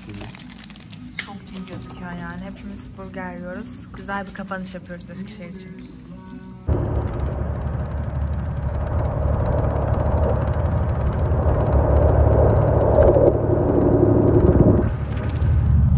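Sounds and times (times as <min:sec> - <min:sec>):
low humming tones: 0:00.1 - 0:15.9
engine rumbling: 0:06.7 - 0:15.9.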